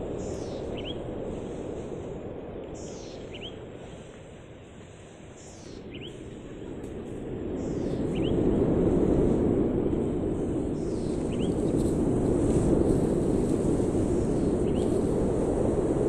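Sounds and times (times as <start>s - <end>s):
bird calling: 0.0s - 1.1s, 2.8s - 3.6s, 5.4s - 6.2s, 10.8s - 11.6s
low outdoor rushing noise: 0.0s - 16.0s.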